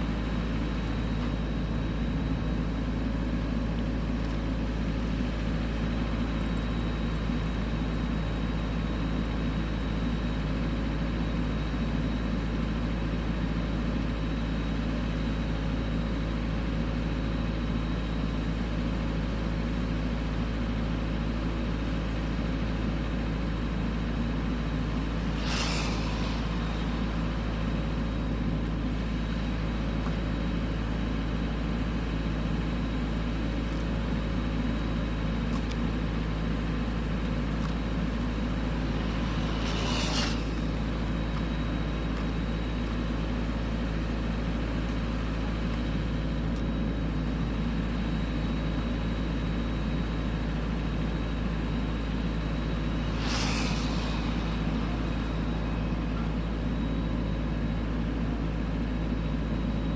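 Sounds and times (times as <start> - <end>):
wood chipper engine drone: 0.0 - 59.9
low hum: 22.2 - 59.9
sharp whoosh: 24.6 - 29.0, 37.9 - 43.1, 52.0 - 57.7.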